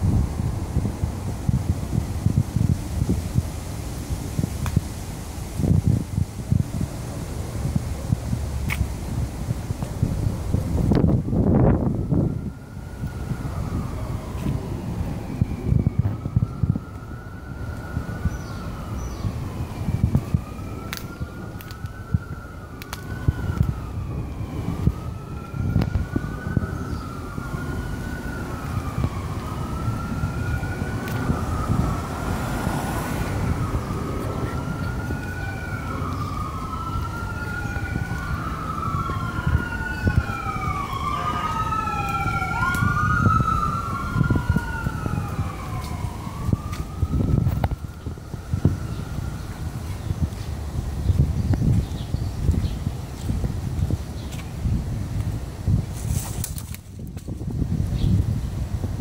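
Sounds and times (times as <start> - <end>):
low rumble of street noise: 0.0 - 59.0
emergency vehicle siren wailing: 5.6 - 51.2
second siren: 10.6 - 50.4.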